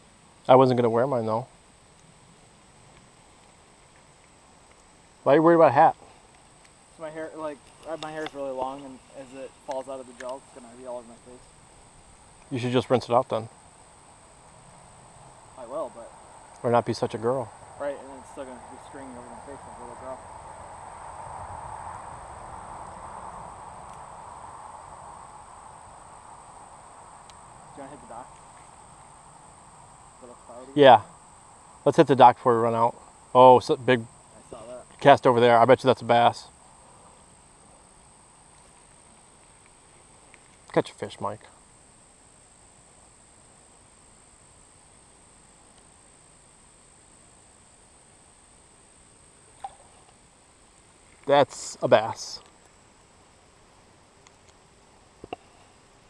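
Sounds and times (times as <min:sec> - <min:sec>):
insects chirping: 0:00.0 - 0:56.0
thin high drone: 0:06.9 - 0:11.5, 0:15.4 - 0:28.3.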